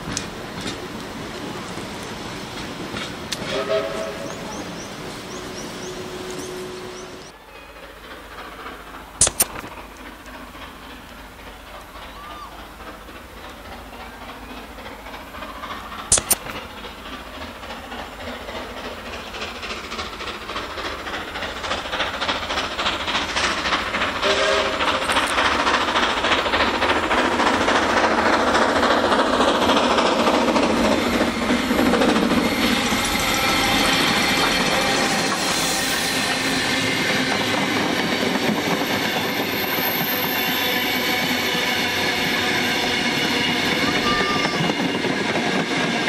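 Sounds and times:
steam locomotive exhaust: 0.0s - 46.0s
train wheels on rails: 0.0s - 46.0s
train whistle: 3.4s - 4.6s, 5.9s - 7.3s, 24.2s - 25.0s, 40.2s - 44.8s
sharp clicks: 9.2s - 10.4s, 16.1s - 16.7s.

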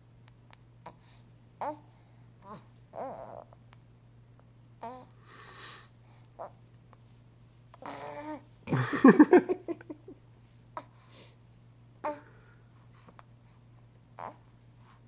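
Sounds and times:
baby grunting: 7.8s - 8.4s.

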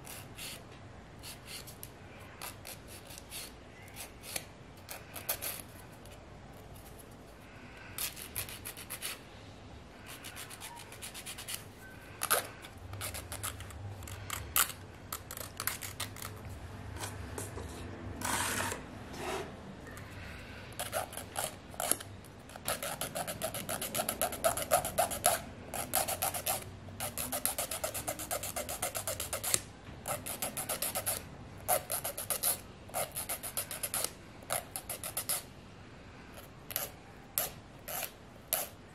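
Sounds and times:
nail file rasping: 1.2s - 5.7s, 8.0s - 9.2s, 10.1s - 11.6s, 12.2s - 16.4s, 20.8s - 35.5s, 36.4s - 38.8s.

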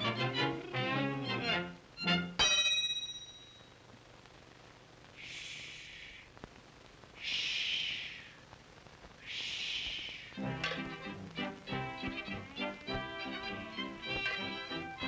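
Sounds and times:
metallic clang: 2.4s - 3.6s
long breathy hisses: 5.2s - 6.4s, 7.2s - 8.5s, 9.2s - 10.4s.

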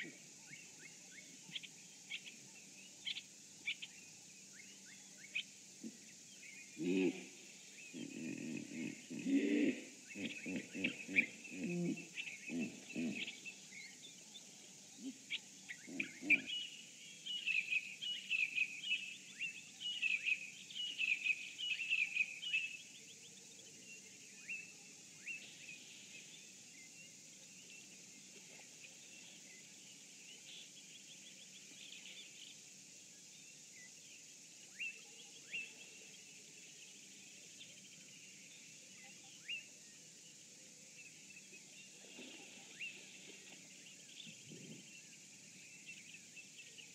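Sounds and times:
faint hiss: 0.0s - 46.9s
birds chirping and calling: 8.0s - 13.7s, 15.7s - 16.8s.

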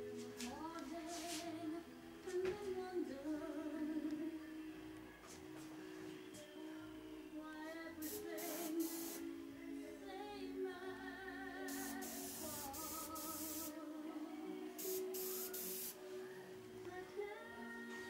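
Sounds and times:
background music with woman singing: 0.0s - 18.0s
airbrush spraying hiss: 8.0s - 9.3s, 11.6s - 13.8s, 14.8s - 16.0s.

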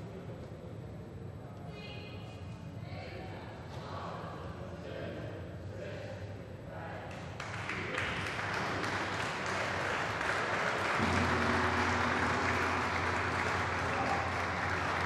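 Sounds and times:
group applause: 7.4s - 15.0s
low steady hum: 10.9s - 15.0s
gong struck: 11.0s - 15.0s.

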